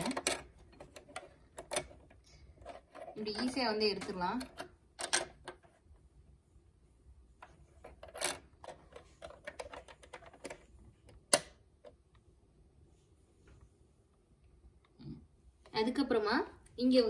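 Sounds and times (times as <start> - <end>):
plastic bobbin clicks and scrapes: 0.0 - 5.8, 7.4 - 12.0.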